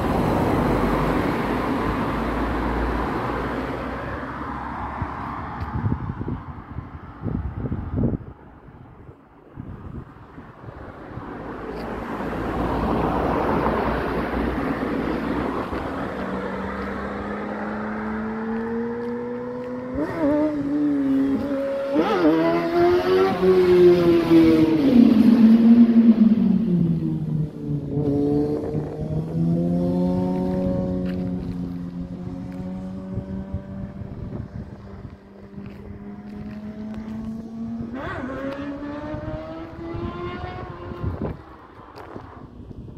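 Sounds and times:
vehicle rushing past: 0:10.7 - 0:42.6
motorcycle engine accelerating: 0:16.1 - 0:42.5.

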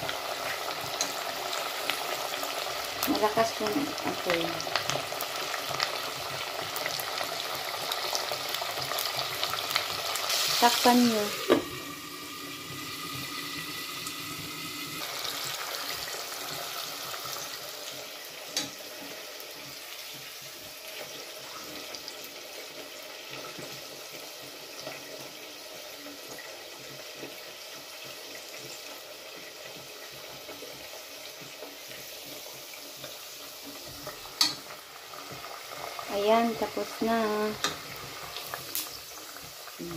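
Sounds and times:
muffled oil sizzling: 0:00.0 - 0:39.9.

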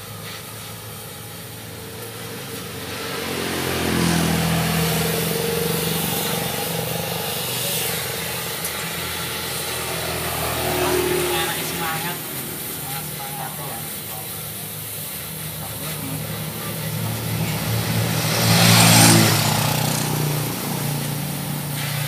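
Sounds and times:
vehicle engine speeding up: 0:01.6 - 0:22.0.

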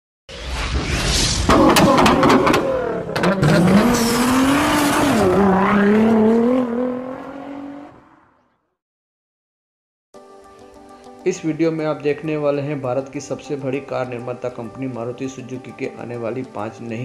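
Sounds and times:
sharp hits: 0:00.3 - 0:02.8
sports car engine revving: 0:01.8 - 0:07.9.

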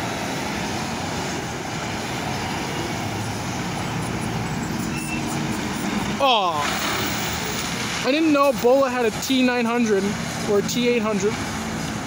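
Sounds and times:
road traffic: 0:00.0 - 0:12.0
truck diesel engine running: 0:00.0 - 0:12.0.

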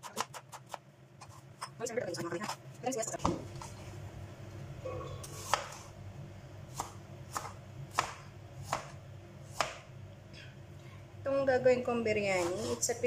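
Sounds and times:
knife chopping on cutting board: 0:00.0 - 0:01.7, 0:05.3 - 0:05.8, 0:06.7 - 0:09.9.

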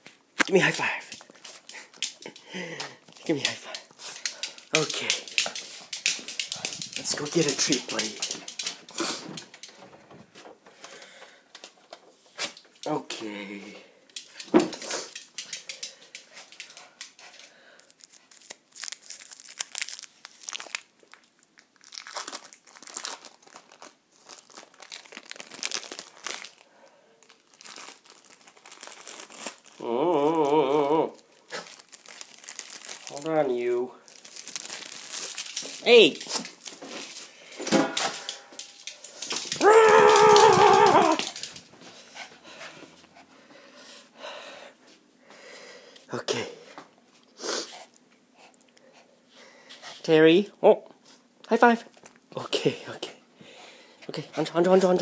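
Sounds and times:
plastic packaging crinkling: 0:00.0 - 0:09.8, 0:14.2 - 0:30.5, 0:31.1 - 0:41.7
small dog howling: 0:39.6 - 0:41.4.

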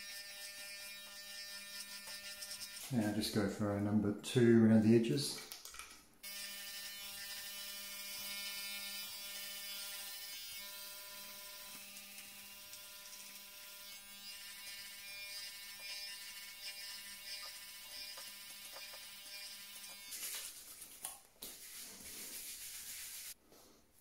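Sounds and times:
electric hair clipper buzzing: 0:00.0 - 0:02.9, 0:06.2 - 0:20.5.

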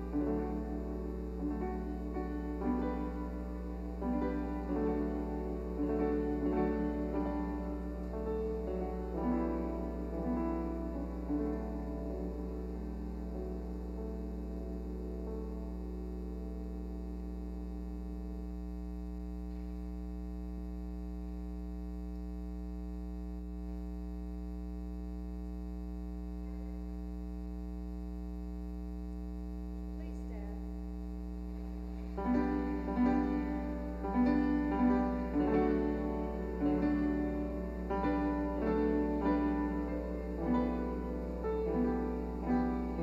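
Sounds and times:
keyboard playing hymn-like chords: 0:00.0 - 0:18.0, 0:32.1 - 0:43.0
electrical mains hum: 0:00.0 - 0:43.0.

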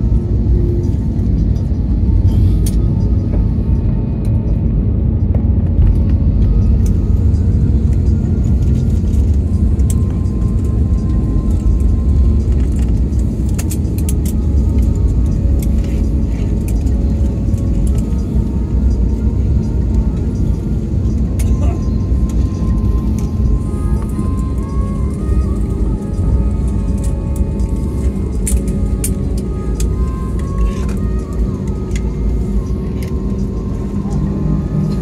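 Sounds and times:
airliner engines and wheels rumbling: 0:00.0 - 0:35.0
rattling clicks in cabin: 0:05.2 - 0:35.0.

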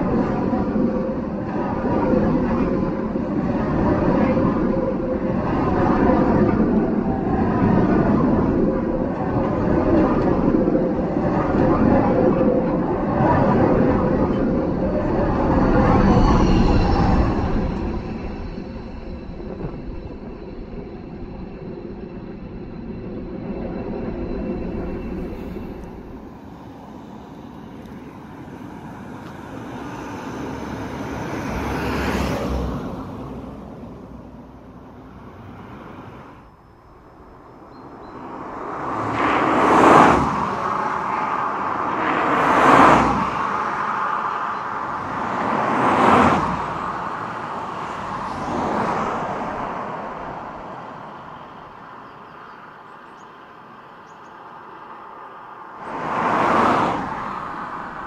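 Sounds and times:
steady traffic hum: 0:00.0 - 0:58.0
cars passing close by: 0:22.9 - 0:58.0.

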